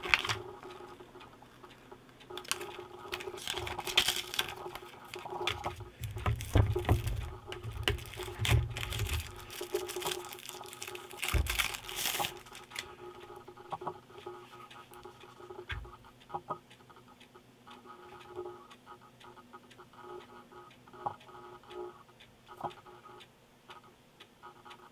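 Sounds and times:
packaging rustling and tearing: 0:00.0 - 0:00.4, 0:02.4 - 0:12.9
small clicks and taps: 0:00.0 - 0:24.9.

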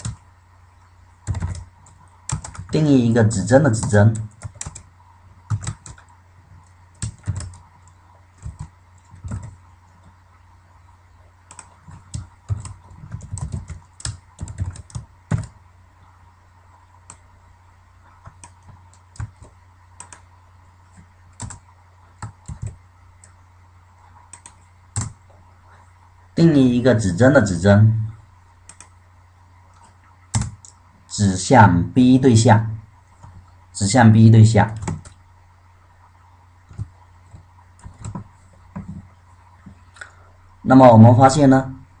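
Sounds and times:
keyboard typing: 0:00.0 - 0:00.2, 0:01.2 - 0:02.8, 0:03.6 - 0:10.2, 0:11.4 - 0:15.6, 0:18.0 - 0:20.3, 0:20.9 - 0:23.4, 0:24.1 - 0:25.4, 0:28.6 - 0:29.0, 0:29.7 - 0:30.8, 0:34.7 - 0:35.2, 0:36.7 - 0:39.8.

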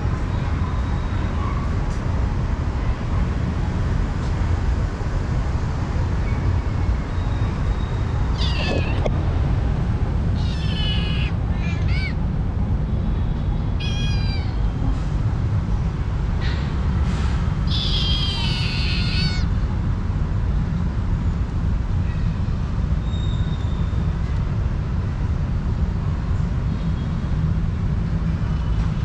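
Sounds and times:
kitten meowing: 0:08.3 - 0:09.1, 0:10.4 - 0:12.2, 0:13.8 - 0:14.7, 0:17.7 - 0:19.4.

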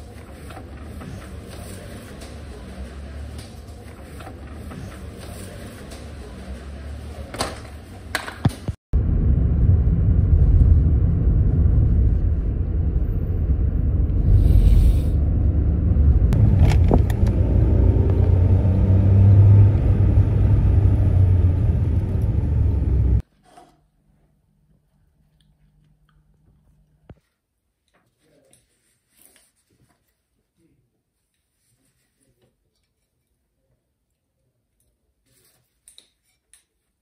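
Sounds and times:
car engine rumble and road noise: 0:00.0 - 0:23.2.

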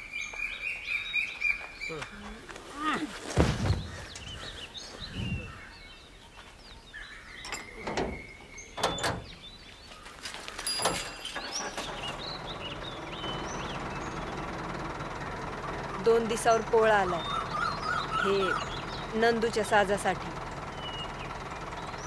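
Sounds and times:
birds chirping: 0:00.0 - 0:22.0
knocks and metallic clanks: 0:07.4 - 0:09.4, 0:10.6 - 0:12.0
low engine hum: 0:10.8 - 0:22.0.

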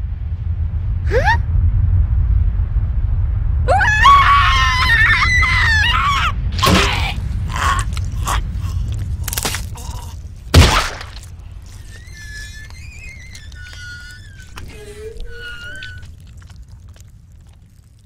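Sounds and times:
low rumble: 0:00.0 - 0:18.0
cartoon character screaming: 0:03.7 - 0:08.4
loud splattering crash: 0:10.5 - 0:11.3.

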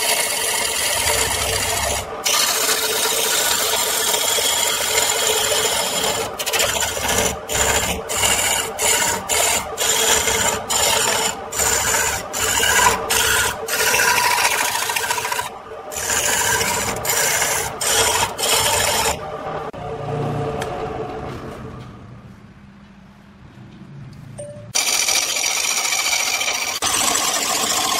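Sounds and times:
lathe gouge cutting wood: 0:00.0 - 0:19.2, 0:24.8 - 0:27.9
lathe running: 0:00.0 - 0:19.8, 0:24.8 - 0:27.9.

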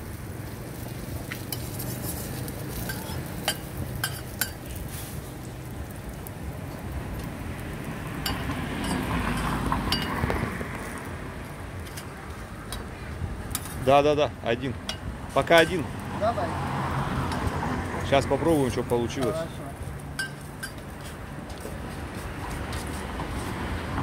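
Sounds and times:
pancake sizzling in oil: 0:00.0 - 0:14.0.

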